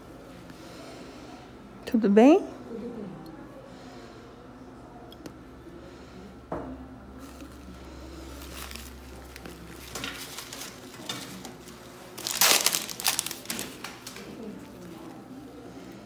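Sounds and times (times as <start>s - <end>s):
wrapping crinkling: 7.2s - 15.4s.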